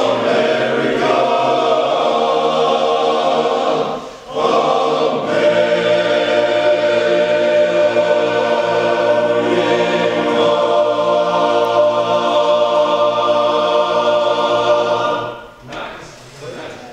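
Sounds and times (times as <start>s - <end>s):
men's chorus singing: 0.0s - 15.6s.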